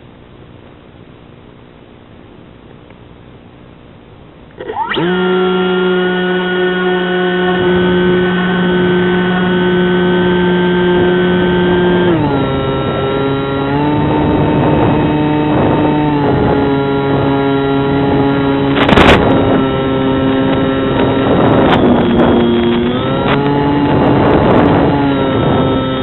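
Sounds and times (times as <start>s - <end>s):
electric motor and propeller: 4.5s - 26.0s
wind noise rush: 6.6s - 26.0s.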